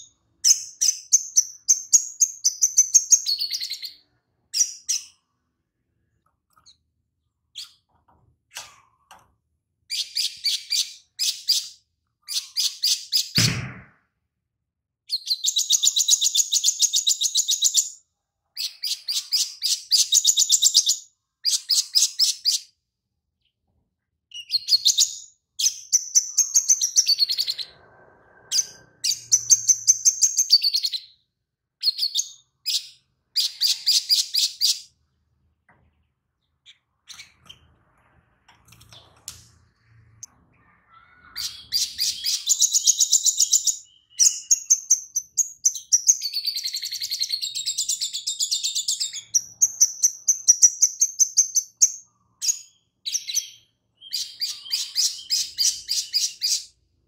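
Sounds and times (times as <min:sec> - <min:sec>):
bird singing high chattering trills: 0:00.0 - 0:05.3, 0:15.1 - 0:18.0, 0:24.3 - 0:27.9, 0:28.5 - 0:31.2, 0:40.0 - 0:56.8.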